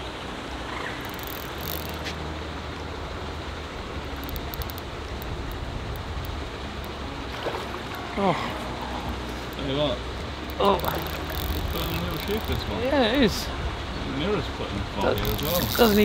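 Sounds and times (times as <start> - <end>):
faint ticks: 1.0 - 2.2, 4.2 - 7.0, 10.4 - 12.6.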